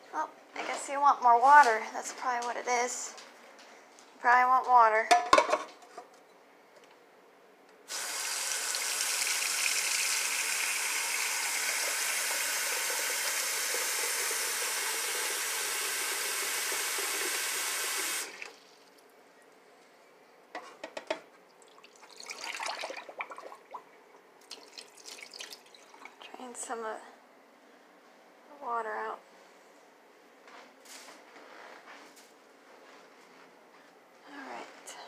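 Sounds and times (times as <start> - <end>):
tap water filling a bowl: 7.9 - 18.6, 21.6 - 26.2.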